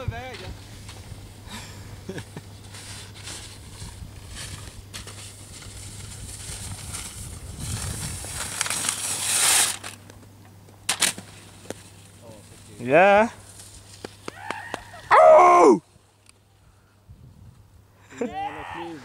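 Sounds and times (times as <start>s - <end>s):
sled runners scraping on snow: 2.5s - 9.8s.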